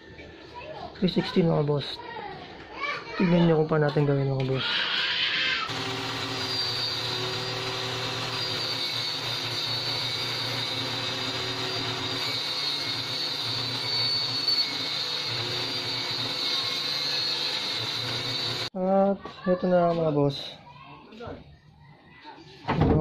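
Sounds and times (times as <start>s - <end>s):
power tool motor humming and whining: 5.7s - 18.7s.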